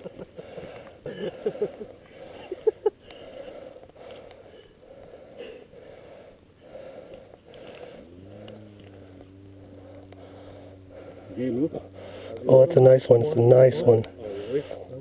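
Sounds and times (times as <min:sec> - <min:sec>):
engine starting and humming: 0:07.6 - 0:15.0.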